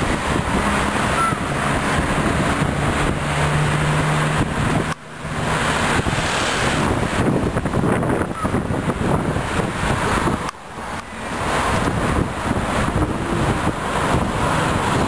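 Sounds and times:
cars driving past: 0.0 - 15.0
low engine hum: 0.0 - 15.0
wind on microphone: 0.0 - 15.0.

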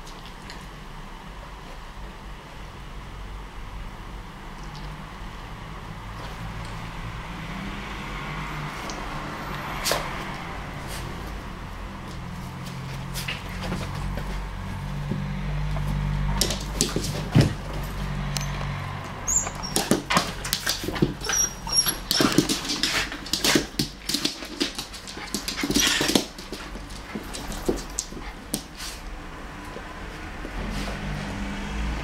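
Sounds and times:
dogs yipping and whimpering: 19.2 - 23.1.

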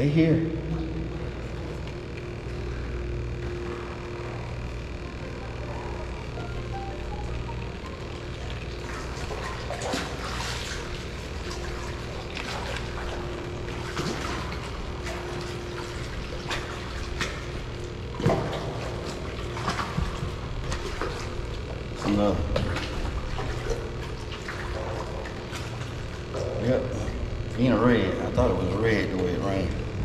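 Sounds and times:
steady low hum: 0.0 - 30.0
water sloshing and splashing: 7.8 - 30.0.

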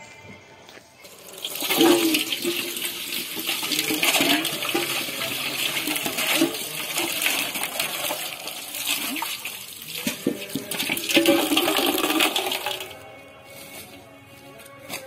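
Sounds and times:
water sloshing in a metal pot: 1.1 - 13.0.

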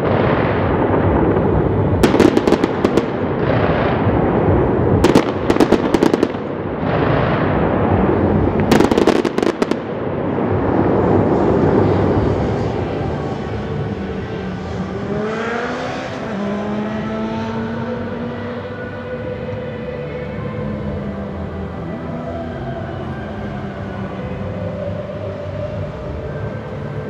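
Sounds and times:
fireworks booming: 0.0 - 14.2
sharp fireworks crackling: 0.0 - 16.6.

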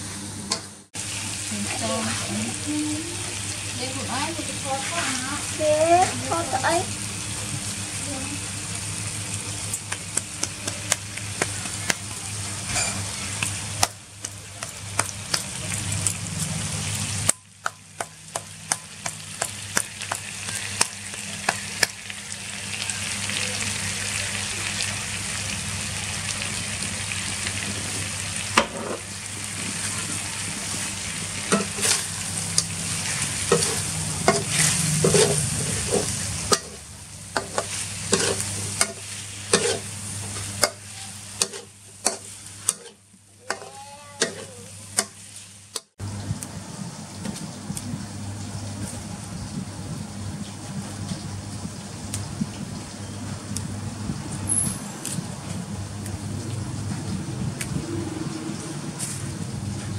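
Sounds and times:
food sizzling in hot oil: 0.9 - 59.9
metal spoon scraping a pan: 31.5 - 32.1, 33.0 - 36.8, 37.4 - 45.2.

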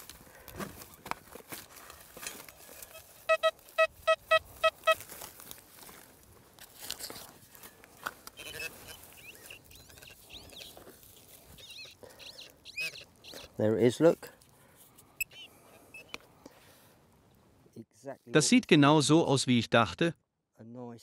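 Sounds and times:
scraping and rustling of dry soil: 0.0 - 15.2
metal detector beeping: 2.8 - 5.1, 8.4 - 10.8, 11.6 - 13.4, 15.2 - 16.2.

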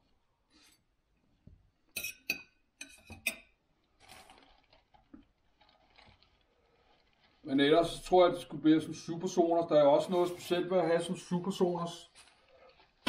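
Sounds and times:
fork clinking against plate: 2.0 - 3.5
soft rustle: 3.8 - 13.0.

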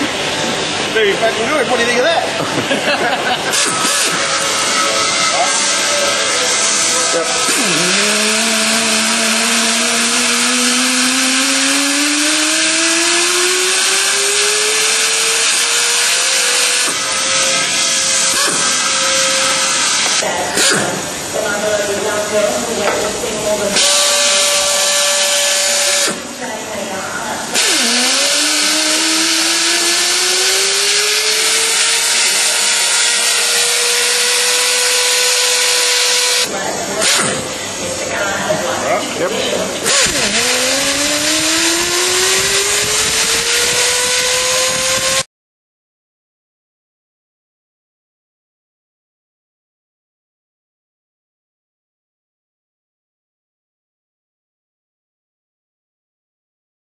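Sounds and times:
pneumatic torque wrench whining: 3.4 - 21.1, 23.7 - 26.3, 27.5 - 37.6, 39.8 - 45.3
loud air hiss: 23.8 - 26.4.

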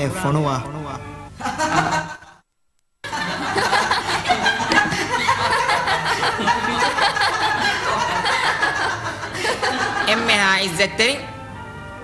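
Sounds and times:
group laughing and chattering: 1.4 - 2.4, 3.0 - 10.4.

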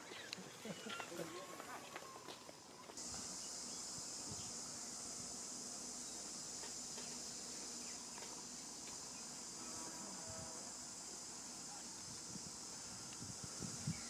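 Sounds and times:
insects droning: 0.0 - 14.0.

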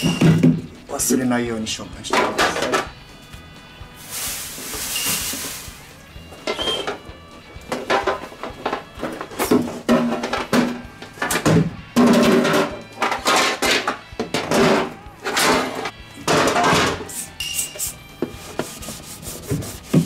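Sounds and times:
cloth rubbing plastic: 4.0 - 6.0.

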